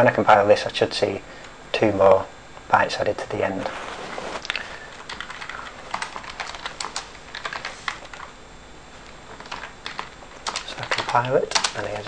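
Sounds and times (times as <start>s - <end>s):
typing on computer keyboard: 5.1s - 8.3s, 9.4s - 12.0s.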